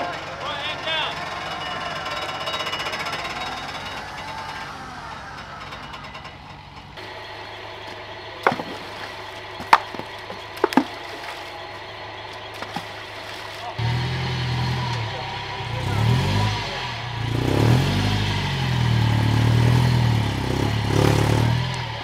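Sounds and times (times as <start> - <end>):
engine revving under load: 0.0 - 22.0
rocks knocking: 7.8 - 13.6.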